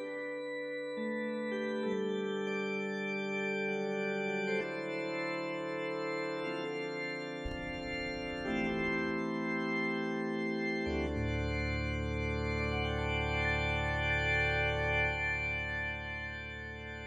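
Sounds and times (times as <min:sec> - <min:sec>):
organ chords: 0:00.0 - 0:17.0
deep organ bass note: 0:05.8 - 0:10.1, 0:10.8 - 0:17.0.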